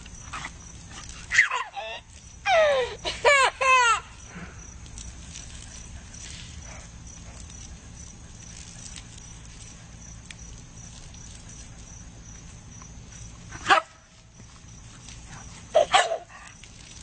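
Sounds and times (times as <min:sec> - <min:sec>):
dog barking: 0:13.6 - 0:13.9, 0:15.7 - 0:16.3.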